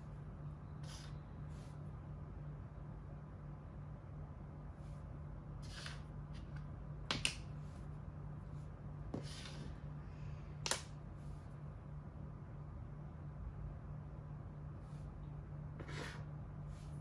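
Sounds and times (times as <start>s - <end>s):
low steady hum: 0.0s - 17.0s
chess pieces sliding on board: 5.6s - 6.5s, 9.1s - 9.8s, 15.8s - 16.3s.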